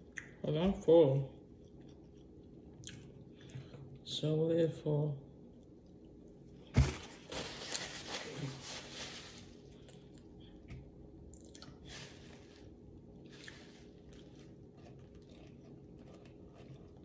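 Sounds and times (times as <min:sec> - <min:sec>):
low steady hum: 0:00.0 - 0:17.0
person chewing food: 0:01.4 - 0:04.0, 0:09.7 - 0:11.9, 0:13.0 - 0:17.0.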